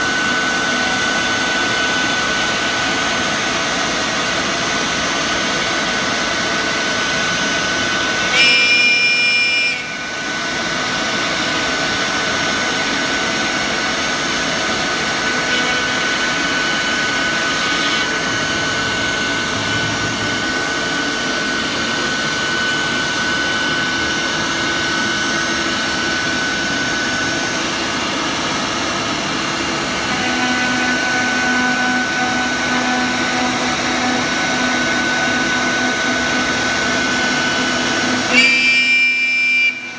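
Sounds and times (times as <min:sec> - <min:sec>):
router spindle whine: 0:00.0 - 0:39.9.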